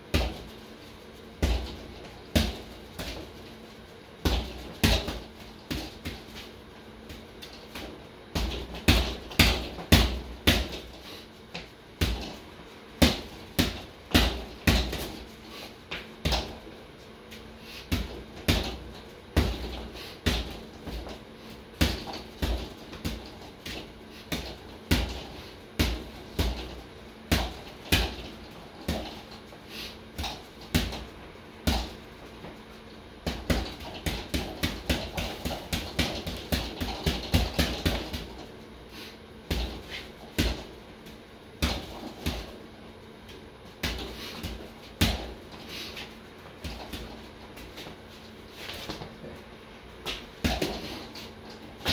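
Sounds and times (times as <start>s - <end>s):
boxing gloves hitting punching bag: 0.1s - 0.5s, 1.4s - 3.5s, 4.2s - 12.4s, 13.0s - 16.7s, 17.8s - 29.6s, 30.2s - 32.6s, 33.2s - 38.6s, 39.5s - 40.8s, 41.6s - 42.6s, 43.8s - 45.6s, 46.6s - 48.0s, 50.0s - 51.9s.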